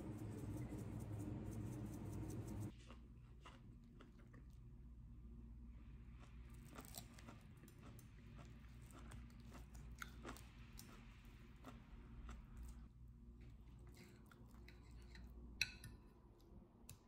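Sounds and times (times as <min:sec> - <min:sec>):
low steady hum: 0:00.0 - 0:17.0
knife and fork crunching potato skin: 0:06.6 - 0:11.0.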